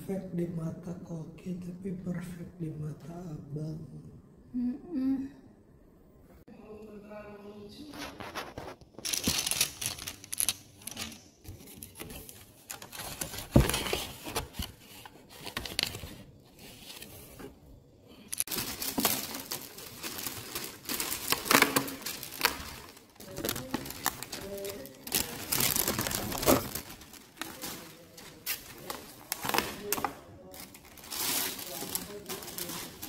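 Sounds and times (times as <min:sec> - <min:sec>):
plastic bags rustling: 0:07.9 - 0:17.6, 0:18.3 - 0:33.0.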